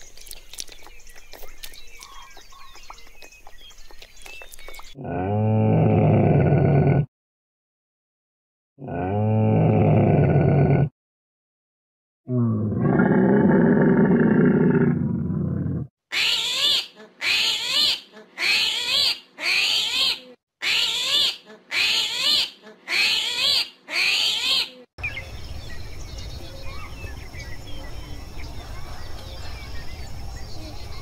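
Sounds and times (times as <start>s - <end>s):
small bird chirps: 0.0s - 5.0s.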